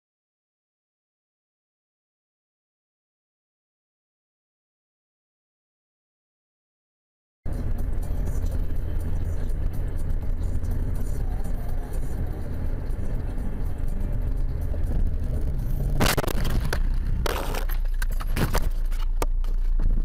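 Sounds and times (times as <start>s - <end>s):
car engine rumble: 7.5s - 20.0s
road noise: 7.5s - 20.0s
knocks and scrapes: 14.2s - 20.0s
collision bang: 15.9s - 18.6s.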